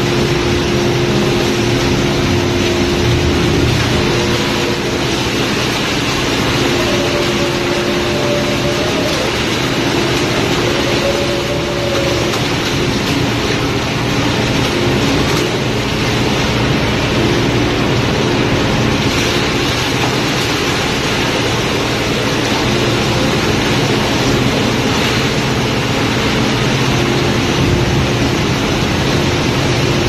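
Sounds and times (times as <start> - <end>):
loud machinery noise: 0.0 - 30.0
water rushing down chute: 0.0 - 30.0
faint wavering tone: 6.2 - 12.9.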